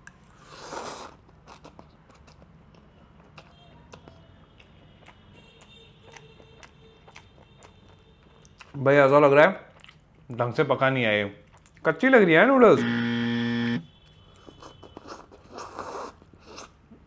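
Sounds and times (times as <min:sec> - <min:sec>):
person chewing quietly: 0:00.0 - 0:09.0, 0:09.6 - 0:10.4, 0:11.4 - 0:11.9, 0:13.9 - 0:17.0
person slurping noodles: 0:00.4 - 0:01.2.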